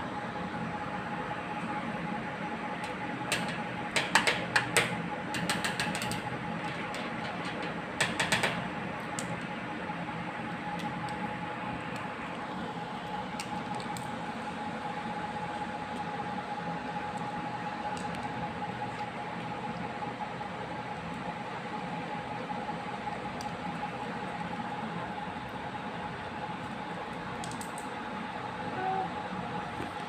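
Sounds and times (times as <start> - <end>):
plastic toy clicking and tapping: 3.3 - 6.2.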